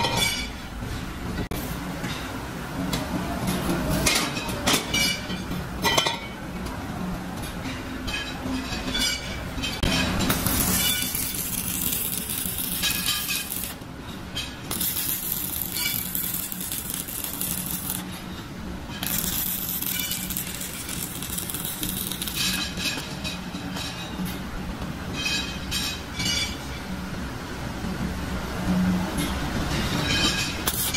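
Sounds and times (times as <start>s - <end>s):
welding arc crackling: 10.3s - 13.8s, 14.7s - 18.2s, 19.0s - 22.8s, 30.7s - 30.9s.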